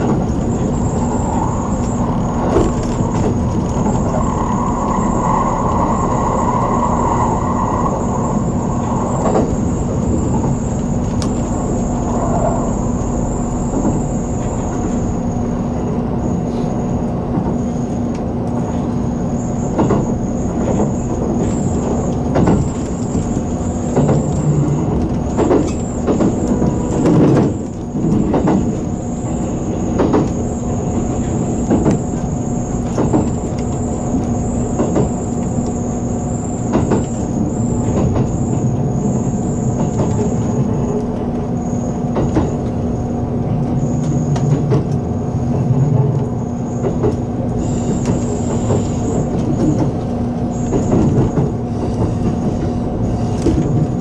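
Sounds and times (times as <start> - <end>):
wheels knocking on track: 0.0 - 15.1, 19.6 - 42.8, 43.8 - 54.0
thin high whine: 0.0 - 18.0
train rumbling at speed: 0.0 - 54.0.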